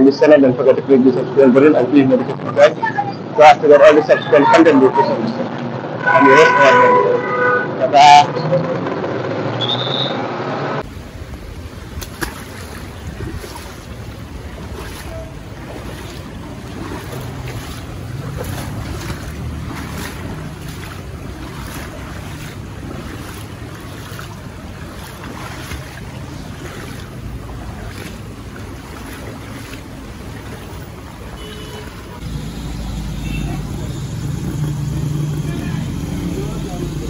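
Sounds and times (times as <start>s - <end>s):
wind rumbling on microphone: 10.8s - 32.3s
floodwater rushing: 10.8s - 37.0s.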